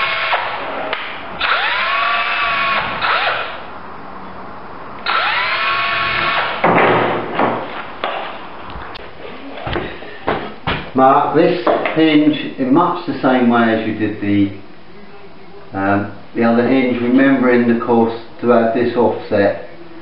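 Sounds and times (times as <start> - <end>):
cordless drill whining: 0.0 - 0.6, 1.4 - 3.6, 5.0 - 6.5.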